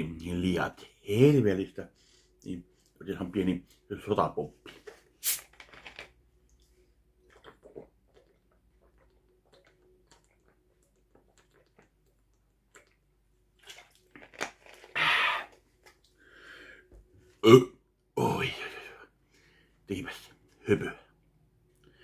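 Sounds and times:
man gulping from a bottle: 6.6 - 13.0, 13.6 - 16.2.

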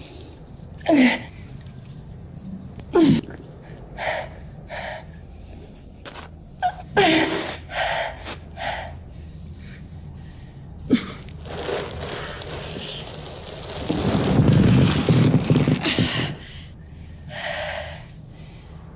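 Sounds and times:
woman panting and gasping: 15.8 - 18.1.

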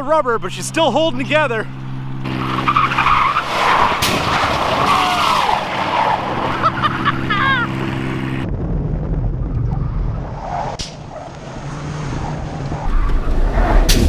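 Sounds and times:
truck engine running hard: 0.0 - 8.7
tires squealing on asphalt: 0.5 - 8.4, 10.1 - 14.0.

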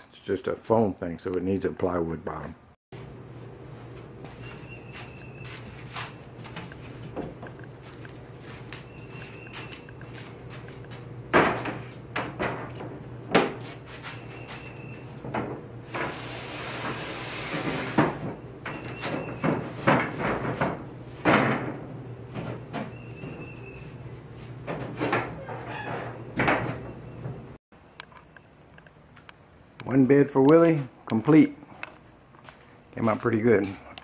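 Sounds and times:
plywood sheet scraping: 15.8 - 26.2.

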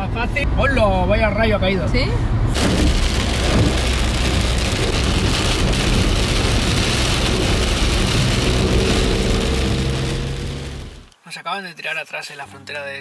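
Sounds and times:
low rumble: 2.3 - 11.1
heavy rain on car roof: 2.5 - 11.1.

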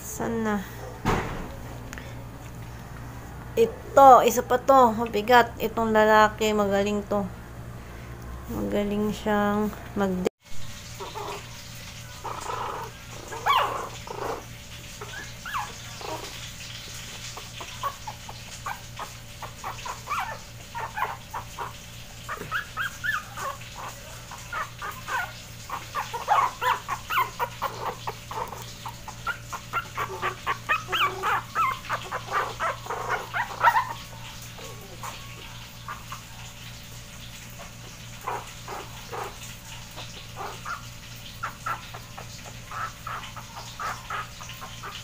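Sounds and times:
puppies whimpering and yipping: 10.8 - 45.0.

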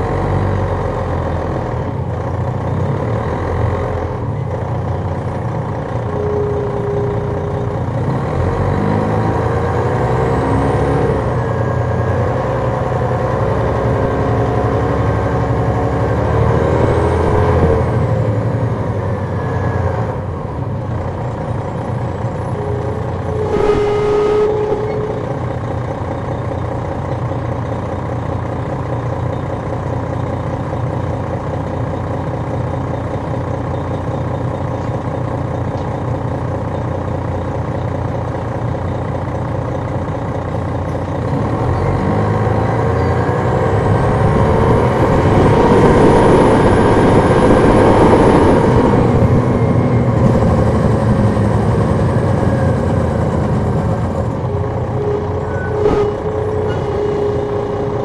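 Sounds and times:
high engine whine: 0.0 - 27.2, 40.8 - 58.0
coach diesel engine running: 0.0 - 58.0.

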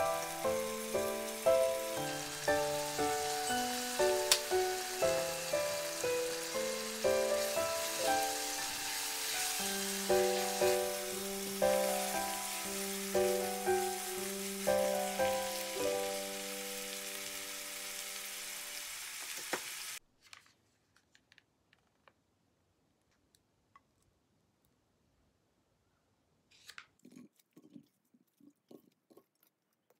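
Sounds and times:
background music light melody: 0.0 - 18.8
food sizzling in frying pan: 0.0 - 20.0.

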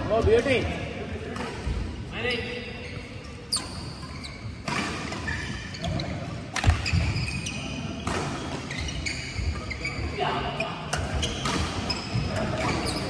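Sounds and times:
shoes squeaking on court: 2.2 - 13.0
racket striking shuttlecock: 6.5 - 6.8.

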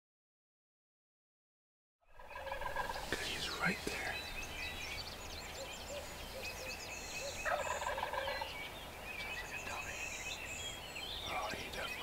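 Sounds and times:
birds chirping: 2.1 - 12.0
turkey gobbling: 2.2 - 3.2, 7.2 - 8.6.

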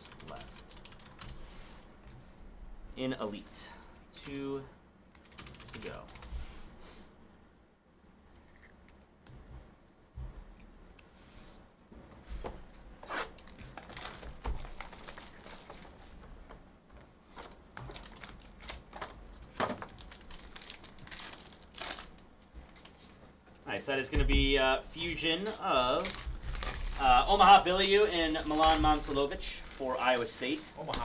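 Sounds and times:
cardboard and wrappers crinkling and tearing: 13.3 - 16.1, 17.4 - 23.2, 25.8 - 31.0.

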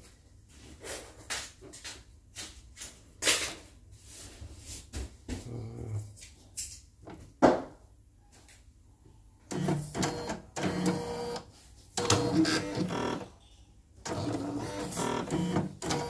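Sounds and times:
embroidery machine stitching: 9.5 - 11.4, 12.0 - 13.2, 14.0 - 16.0.

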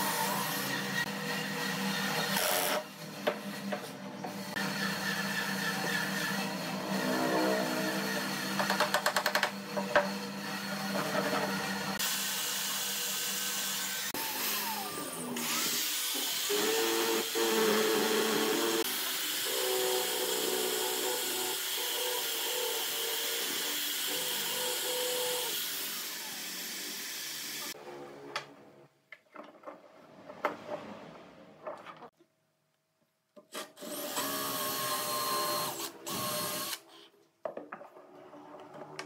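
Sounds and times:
drill motor whine: 10.2 - 27.7, 33.9 - 36.8.

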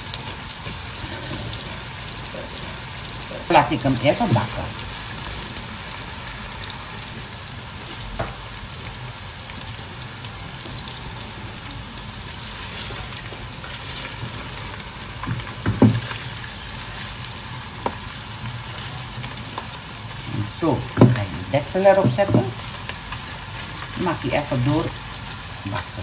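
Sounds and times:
sausage and onions sizzling: 0.0 - 26.0
spatula knocking and scraping pot: 15.2 - 16.2, 20.9 - 22.6.

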